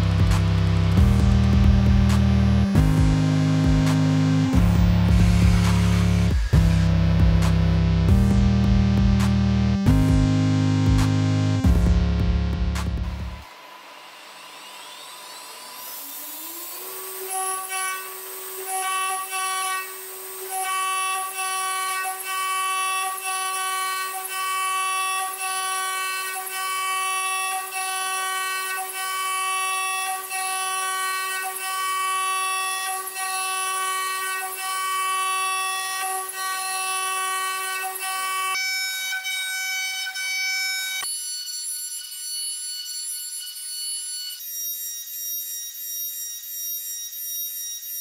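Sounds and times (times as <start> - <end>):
router spindle whine: 0.0 - 7.1, 12.0 - 48.0
end mill engraving metal: 13.4 - 48.0.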